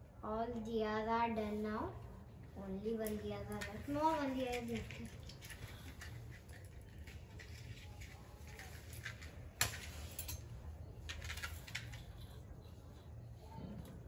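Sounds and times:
low steady hum: 0.0s - 14.0s
small items clicking and rustling: 3.0s - 13.0s.

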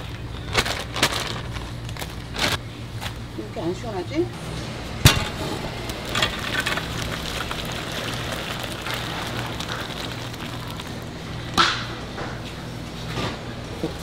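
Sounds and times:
low hum: 0.0s - 14.0s
oil sizzling in deep fryer: 5.0s - 11.7s.

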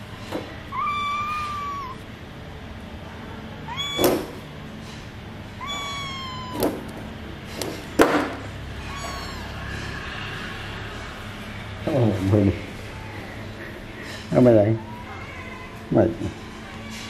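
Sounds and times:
kitten meowing: 0.7s - 2.0s, 3.6s - 4.4s, 5.6s - 7.0s, 8.7s - 9.7s.

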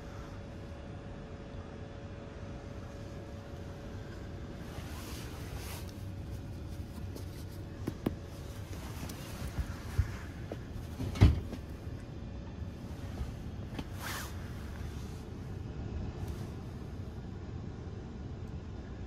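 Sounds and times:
train coach rumble and hum: 0.0s - 19.0s
seat clunk: 6.8s - 12.0s, 13.0s - 14.9s.

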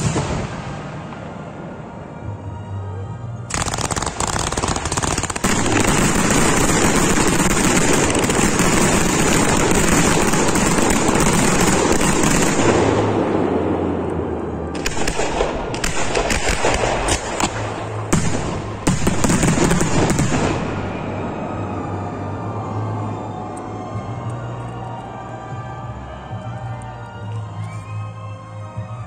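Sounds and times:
fireworks bangs and crackle: 0.0s - 1.8s, 3.5s - 22.5s.

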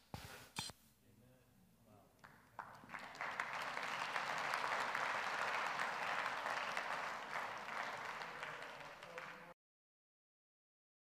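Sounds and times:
audience applauding: 2.2s - 9.6s.

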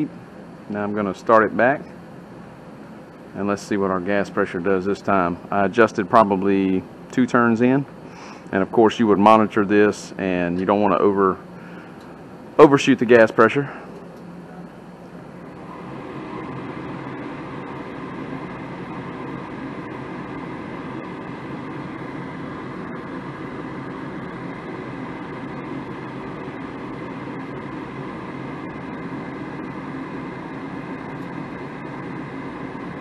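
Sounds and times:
furnace inducer motor humming: 0.0s - 33.0s.

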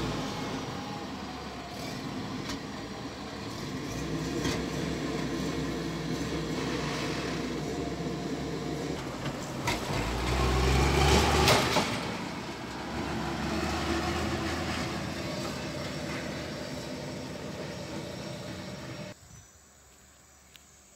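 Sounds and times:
truck engine under load: 0.0s - 19.2s
truck clanks: 3.6s - 19.1s.

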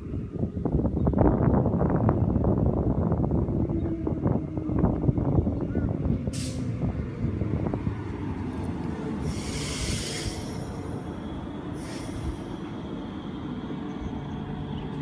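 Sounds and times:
train wheels rumbling on rail: 0.0s - 15.0s
train hiss: 6.3s - 6.8s, 9.1s - 13.8s.

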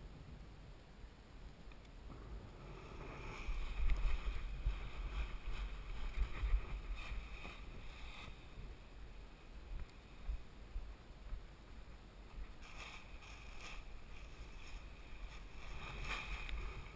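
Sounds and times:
wind buffeting microphone: 2.1s - 11.5s
fabric canopy rustling and flapping: 3.2s - 8.6s, 12.5s - 16.9s.

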